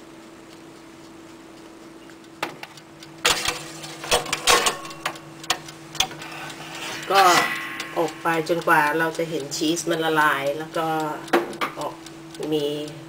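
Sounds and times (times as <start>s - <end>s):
faint steady hum: 0.0s - 13.0s
metal tray and tongs clacking: 3.2s - 8.7s.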